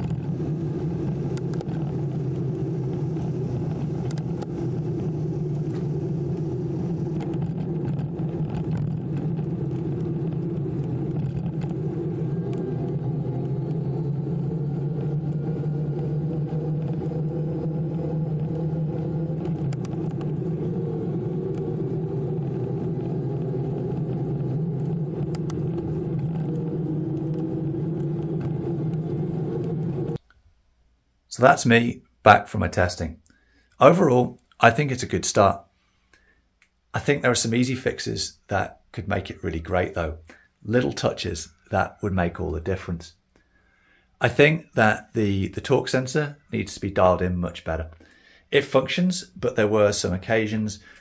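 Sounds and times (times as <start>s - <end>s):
faint thin whine rising: 0.0s - 30.2s
wind and tyre rumble: 0.0s - 30.2s.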